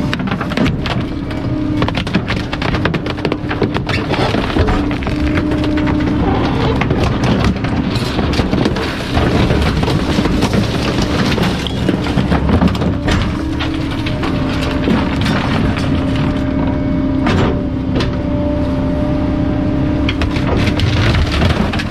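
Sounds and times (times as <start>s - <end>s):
garbage truck engine drone: 0.0s - 21.9s.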